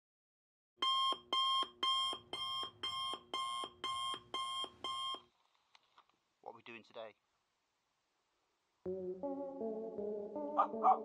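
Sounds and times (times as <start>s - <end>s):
electronic alarm beeping: 0.8s - 5.2s.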